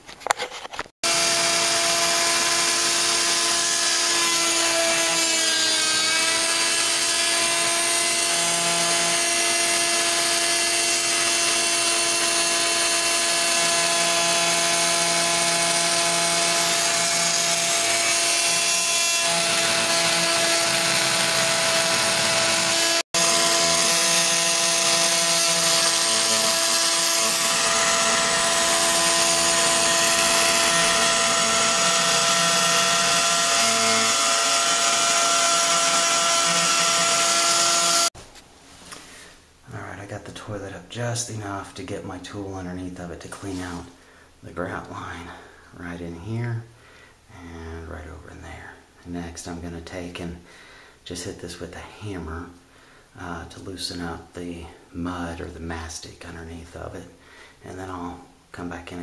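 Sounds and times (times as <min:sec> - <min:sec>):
electric cutoff tool whining: 0:01.0 - 0:38.2.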